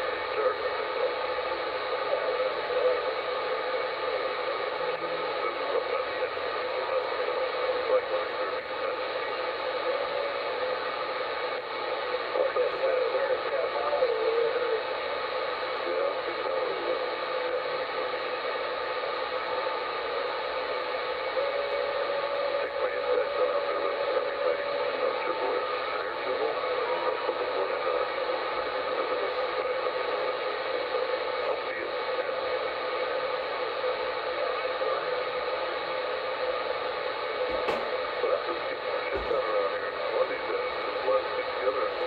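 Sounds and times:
radio static hiss: 0.0s - 42.0s
faint warbling radio signal: 37.2s - 42.0s.

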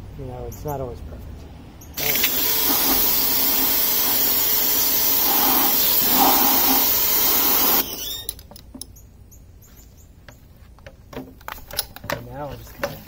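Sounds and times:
pressure washer jet hissing: 2.0s - 8.3s.

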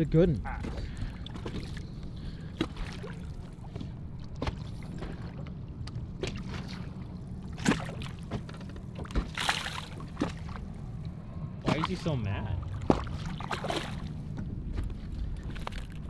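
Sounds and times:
steady low rumble: 0.0s - 16.0s
waves slapping boat hull: 0.1s - 16.0s
water splash: 6.2s - 8.4s, 9.1s - 10.6s, 11.6s - 14.2s
knocks on boat: 7.6s - 9.4s.

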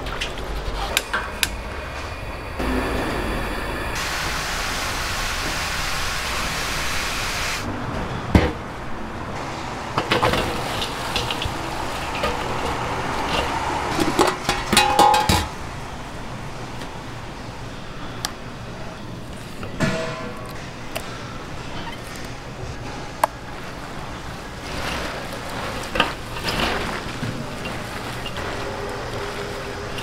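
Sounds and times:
gas burner flame rushing: 0.0s - 7.7s
metal containers clicking and knocking: 10.0s - 15.6s.

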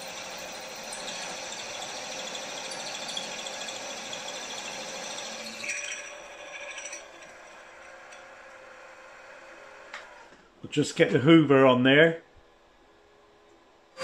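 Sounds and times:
drill cutting metal: 0.0s - 8.3s
metal scrape: 5.4s - 8.3s.

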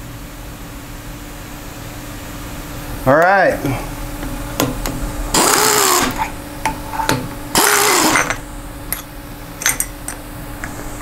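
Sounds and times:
pneumatic air tool whine: 5.3s - 6.3s, 7.5s - 8.4s.

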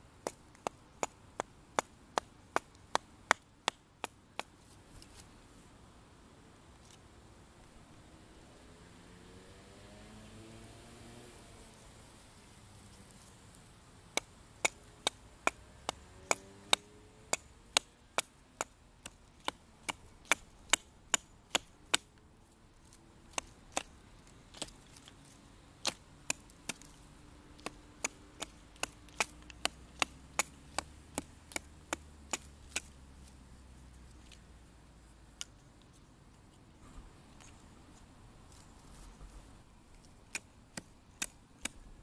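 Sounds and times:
hatchet chopping wood: 0.2s - 4.5s, 14.2s - 22.2s, 23.3s - 25.1s, 25.8s - 33.0s, 40.0s - 41.8s.

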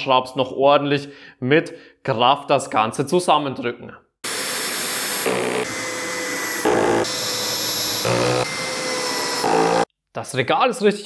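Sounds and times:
cordless drill driving screws: 4.3s - 9.9s.

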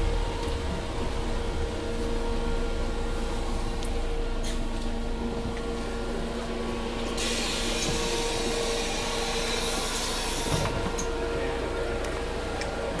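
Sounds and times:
bus engine humming: 0.0s - 13.0s
compressed air hissing: 7.2s - 8.9s.

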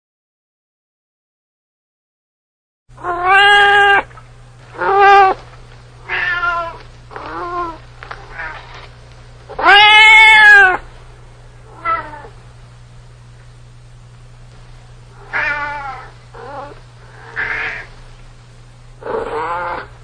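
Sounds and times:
cat meowing: 3.0s - 4.1s, 4.8s - 5.4s, 6.0s - 8.6s, 9.5s - 10.8s, 11.7s - 12.3s, 15.2s - 17.9s, 19.1s - 19.9s.

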